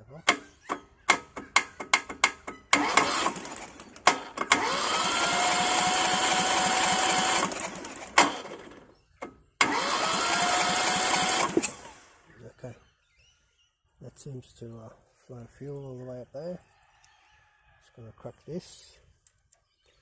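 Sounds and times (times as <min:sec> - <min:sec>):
starter motor cranking engine: 0:00.2 - 0:12.2.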